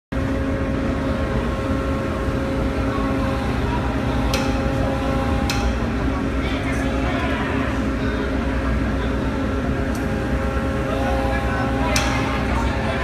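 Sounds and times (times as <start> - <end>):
heavy machinery droning: 0.2 - 13.0.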